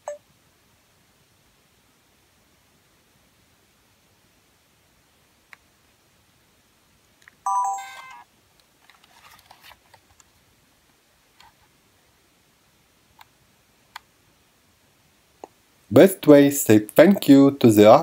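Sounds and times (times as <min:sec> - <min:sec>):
camcorder electronic chime: 0:07.5 - 0:08.2.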